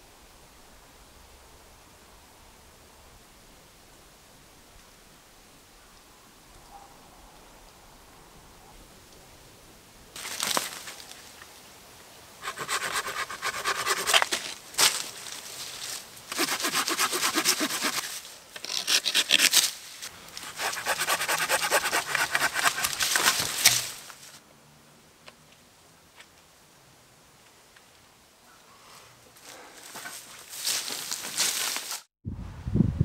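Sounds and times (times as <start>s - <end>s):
hand saw cutting branch: 12.4s - 15.0s, 16.3s - 19.8s, 20.4s - 24.2s.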